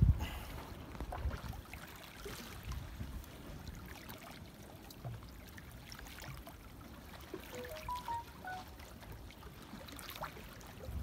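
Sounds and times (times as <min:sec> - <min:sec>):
waves lapping against rocks: 0:00.0 - 0:07.6, 0:08.9 - 0:11.0
short rising high notes: 0:07.6 - 0:08.7.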